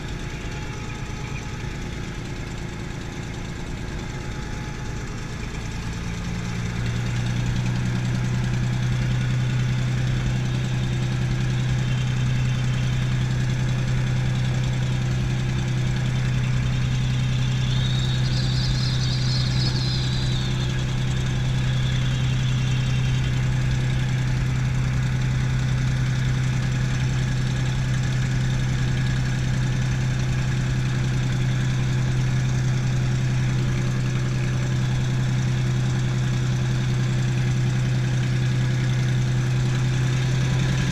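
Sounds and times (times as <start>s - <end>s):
aircraft engine running at low power: 0.0s - 40.9s
faint high squeal: 16.4s - 24.3s.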